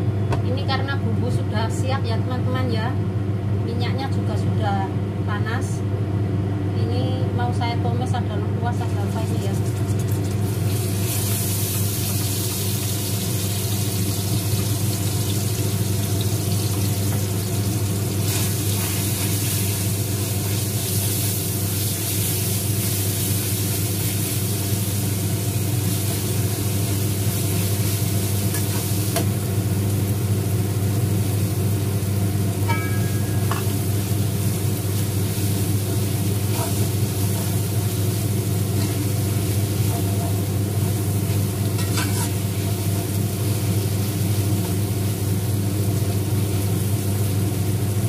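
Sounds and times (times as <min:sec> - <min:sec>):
low machine hum: 0:00.0 - 0:48.0
spice paste sizzling in oil: 0:08.9 - 0:48.0
metal spatula in wok: 0:41.7 - 0:42.7.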